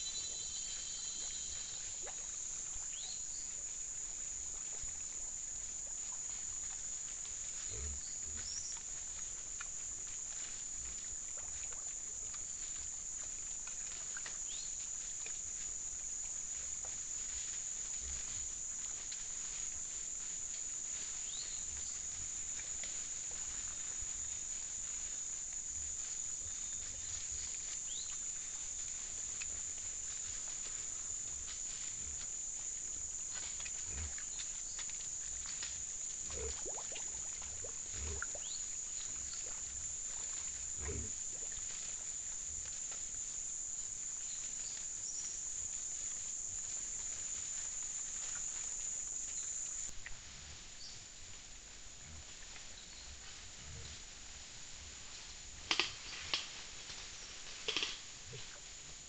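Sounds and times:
steady high-pitched hiss: 0.0 - 59.0
animal grunts: 40.8 - 41.2.

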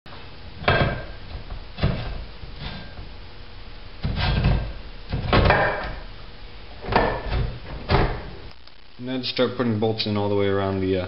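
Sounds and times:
metal knocking and scraping: 4.0 - 6.0.

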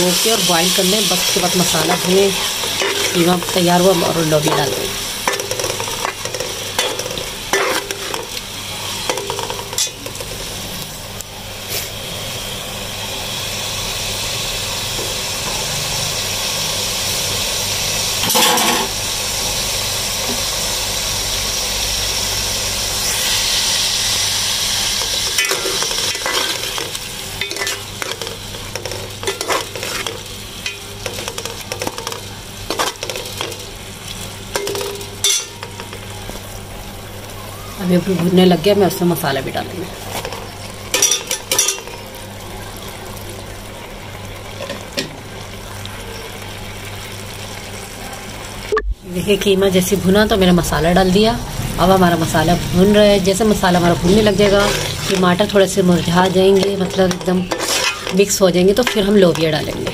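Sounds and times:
meat sizzling in a pot: 0.0 - 59.9
metal spoon scraping a pot: 25.1 - 32.1, 56.5 - 59.1.

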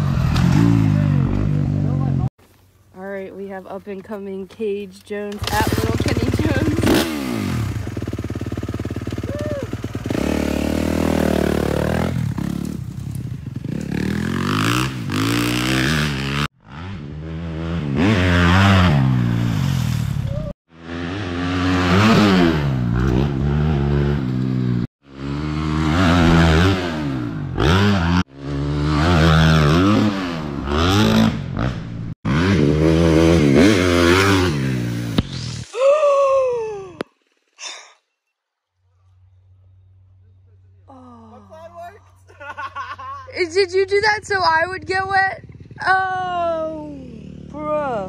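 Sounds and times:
dirt bike engine revving: 5.4 - 20.0, 20.7 - 35.5.

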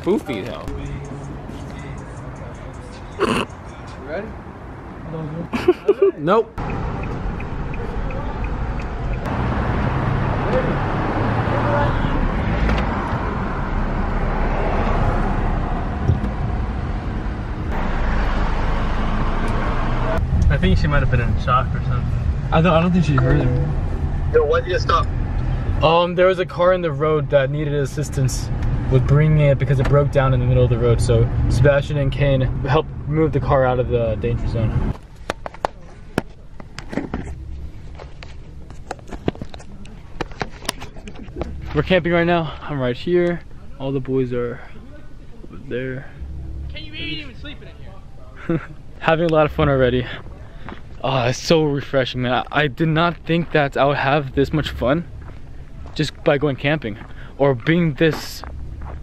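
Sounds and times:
car interior road rumble: 6.6 - 43.8, 52.3 - 59.0.

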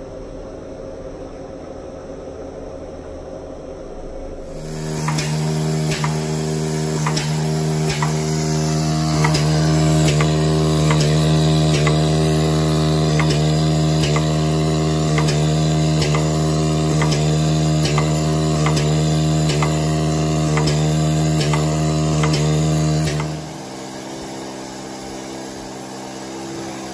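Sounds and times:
conveyor motor hum: 0.0 - 26.9
mechanical clicks: 4.6 - 23.5.

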